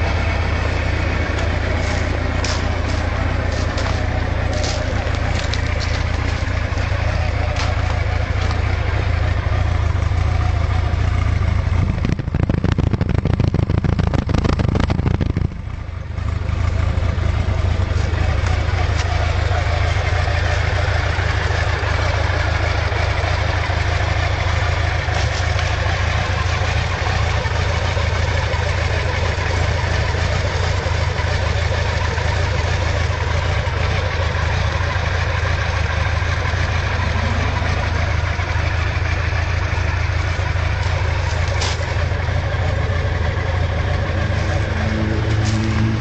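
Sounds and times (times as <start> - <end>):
motorcycle engine idling: 0.0 - 46.0.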